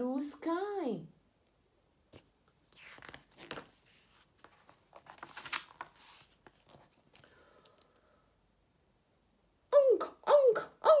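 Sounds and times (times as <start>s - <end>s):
paper pages rustling: 2.1s - 8.0s.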